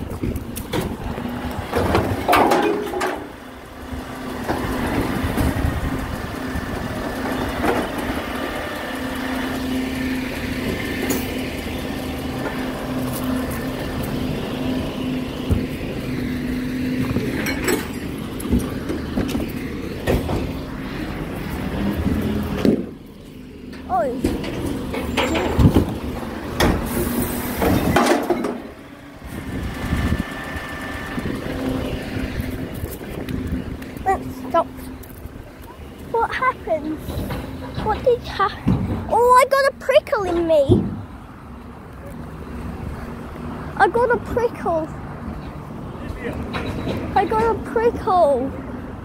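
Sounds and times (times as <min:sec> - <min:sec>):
lorry engine hum: 0:00.0 - 0:49.0
sharp knocks and clatters: 0:00.2 - 0:03.3, 0:27.6 - 0:28.7.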